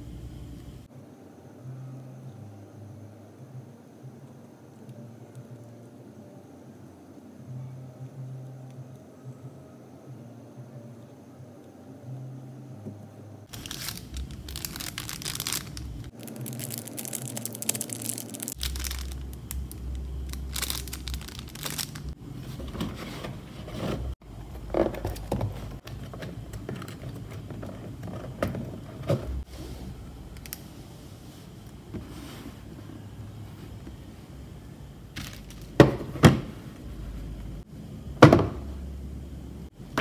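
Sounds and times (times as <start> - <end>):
plastic packaging crinkling: 13.5 - 22.2, 35.2 - 35.8.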